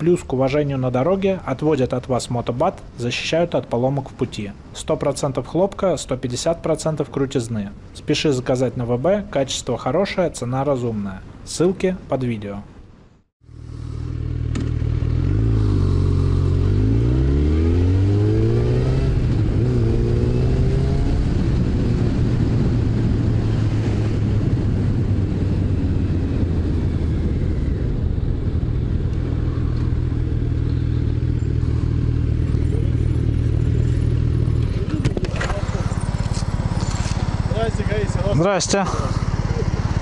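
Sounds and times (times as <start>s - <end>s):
wind and road noise: 0.0s - 40.0s
motorcycle engine shifting gears: 13.5s - 40.0s.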